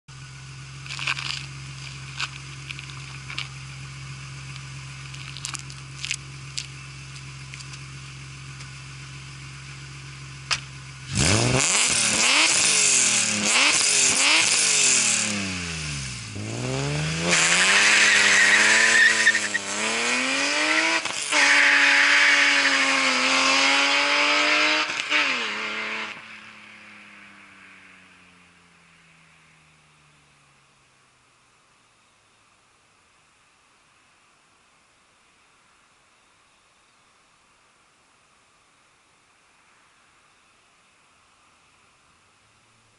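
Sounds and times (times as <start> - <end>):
car engine idling and revving: 0.1 - 35.9, 37.4 - 42.9
car accelerating through gears: 11.1 - 26.4.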